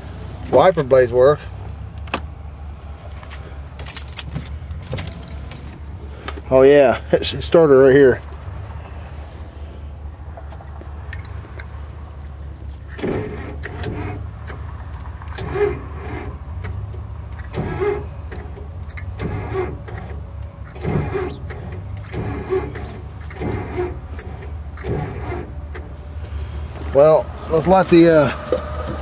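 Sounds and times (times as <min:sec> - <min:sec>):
low motor hum: 0:08.2 - 0:29.0
windshield wipers sweeping: 0:20.8 - 0:29.0.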